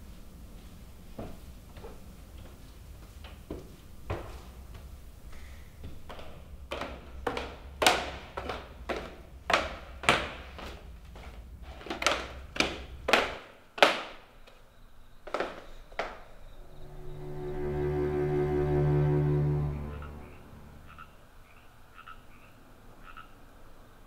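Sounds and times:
footsteps on wooden stairs: 0.6s - 14.6s
low music drone: 16.6s - 21.2s.

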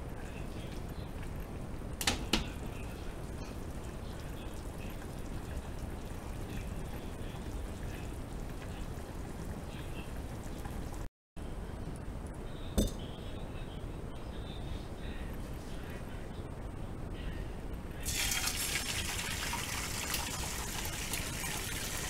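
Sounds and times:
pot simmering hiss: 0.0s - 22.0s
faint bubbling: 2.4s - 11.1s
sharp clink: 12.8s - 13.1s.

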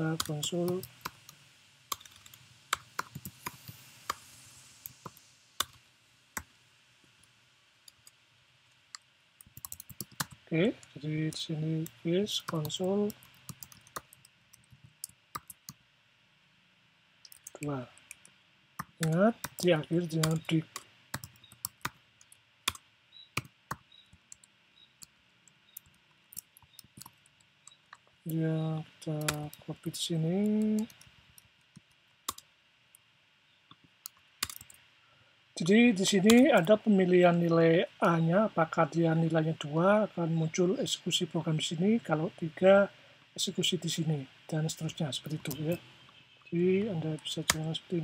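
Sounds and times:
computer keyboard typing: 1.9s - 3.6s, 9.4s - 10.4s, 11.8s - 15.8s, 17.3s - 17.6s, 18.8s - 22.8s, 25.7s - 27.2s, 29.2s - 29.6s, 34.4s - 34.8s, 36.2s - 36.8s, 47.4s - 47.7s.

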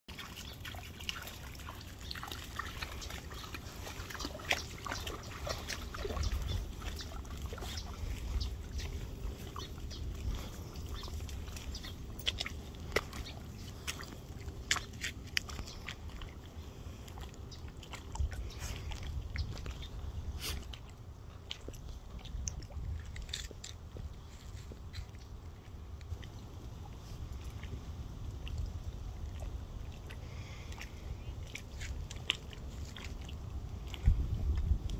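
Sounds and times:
dog splashing in water: 0.1s - 23.9s.

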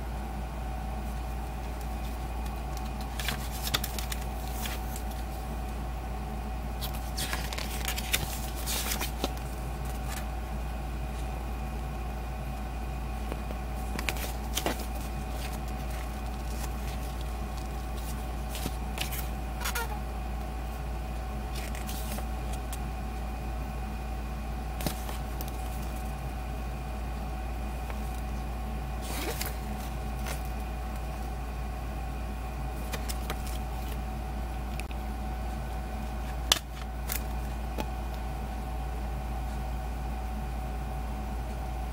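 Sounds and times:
steady electrical hum: 0.0s - 41.9s
paper pages turning: 1.1s - 5.4s, 6.8s - 10.3s, 13.2s - 20.0s, 21.5s - 22.8s, 24.8s - 26.2s, 29.0s - 30.6s, 32.8s - 34.0s, 36.2s - 37.9s.

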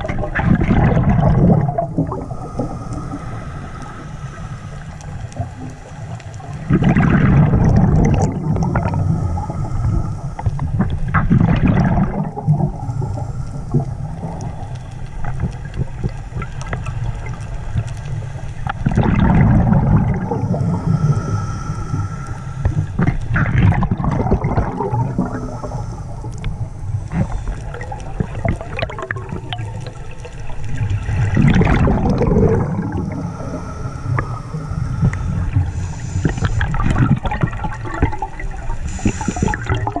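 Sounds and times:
gurgling exhaled bubbles: 0.0s - 40.0s
diver breathing through regulator: 1.3s - 6.1s, 8.1s - 11.0s, 12.1s - 15.0s, 19.1s - 28.5s, 31.2s - 38.0s, 38.7s - 40.0s.

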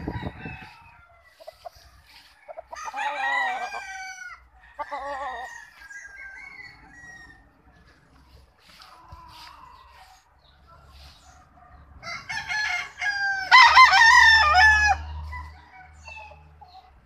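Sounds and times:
rooster crowing: 0.0s - 1.6s, 2.2s - 7.6s, 11.6s - 16.5s.

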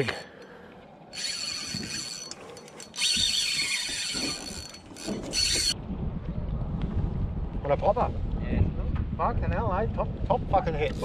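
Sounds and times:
fishing reel drag screaming: 1.2s - 5.8s.

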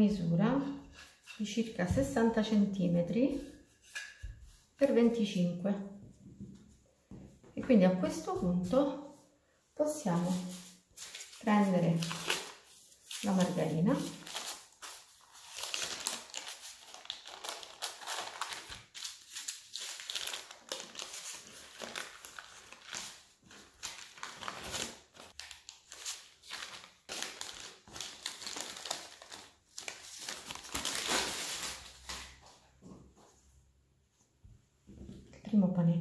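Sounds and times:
parchment paper rustling and crinkling: 10.0s - 33.5s.

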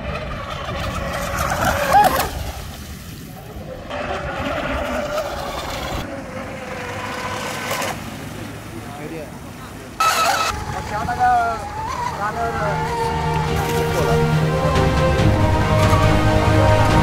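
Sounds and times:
toy boat motor whine: 3.7s - 8.3s, 10.0s - 17.0s.

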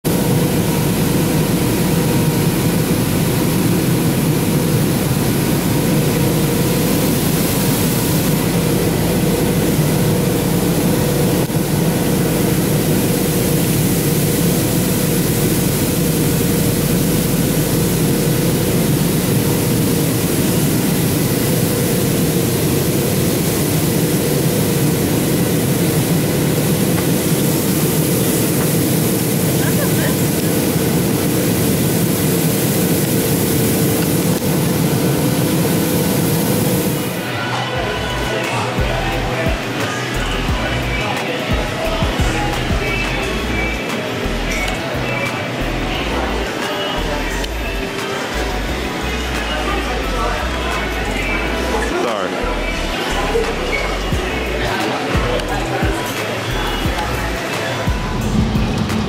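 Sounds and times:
jet engine cabin noise: 0.0s - 59.0s
faint constant whine: 0.1s - 59.0s.

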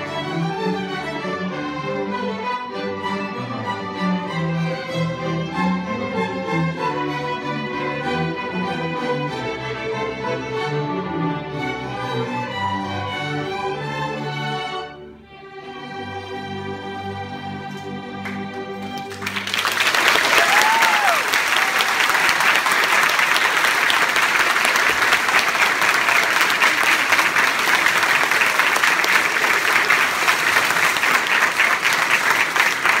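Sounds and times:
audience applause: 18.2s - 33.0s.

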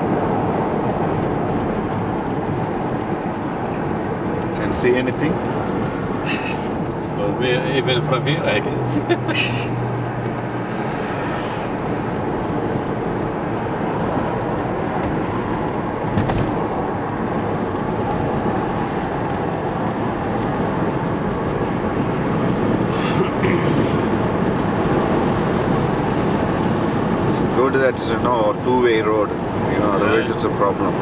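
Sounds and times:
car road and engine noise: 0.0s - 31.0s
brief knock: 16.2s - 16.6s.

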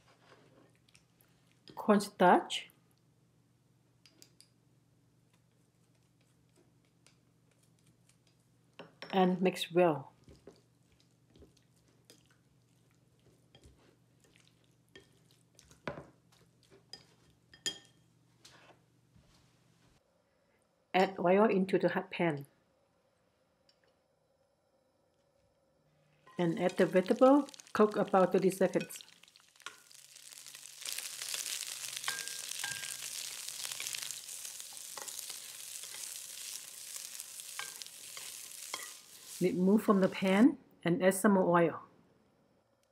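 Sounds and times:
vegetables sizzling in oil: 26.4s - 40.4s
spatula tapping pan: 31.2s - 35.3s
chopsticks clinking on glass: 31.5s - 36.5s, 37.1s - 39.1s.

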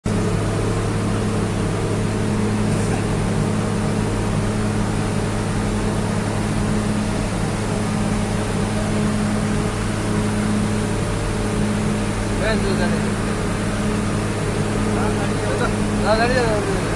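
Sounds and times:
diesel engine droning: 0.0s - 16.9s.

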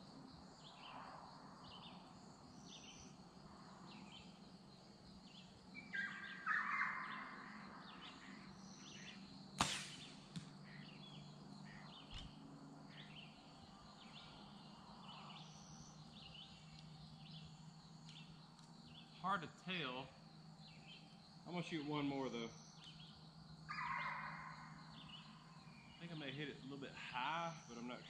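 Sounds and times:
birds chirping: 0.0s - 28.0s
harsh bird call: 5.8s - 11.0s, 23.7s - 28.0s
arrow striking target: 9.6s - 10.6s.

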